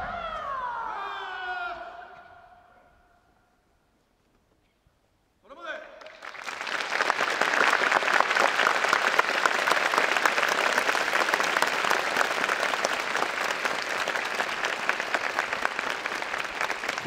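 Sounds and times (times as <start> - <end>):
crowd applauding: 6.0 - 17.0.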